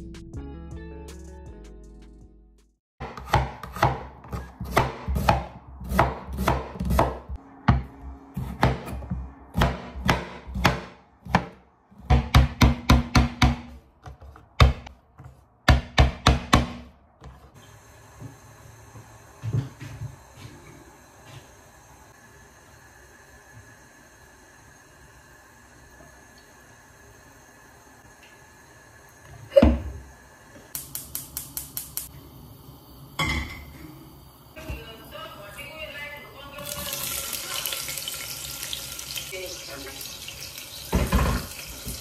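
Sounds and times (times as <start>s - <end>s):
knife chopping on wooden board: 3.0s - 17.4s.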